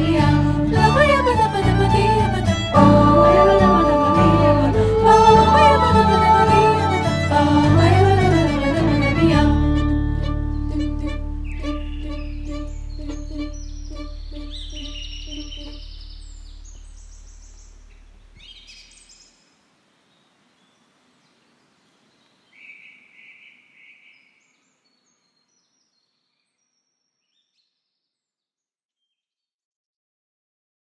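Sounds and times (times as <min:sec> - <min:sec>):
song ending: 0:00.0 - 0:15.8
low held bass: 0:00.0 - 0:18.4
birds chirping: 0:10.3 - 0:27.8.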